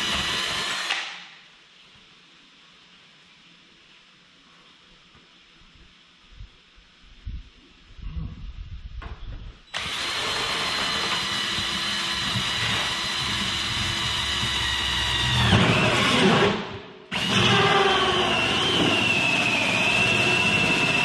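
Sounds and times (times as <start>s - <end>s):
cordless drill motor whine: 0.0s - 1.0s, 9.7s - 16.5s, 17.1s - 21.0s.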